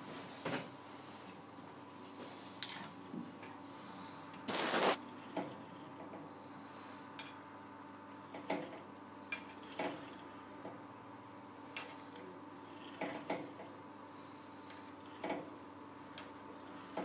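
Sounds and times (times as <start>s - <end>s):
faint steady hum: 0.0s - 17.0s
rubbing rush: 4.5s - 5.0s.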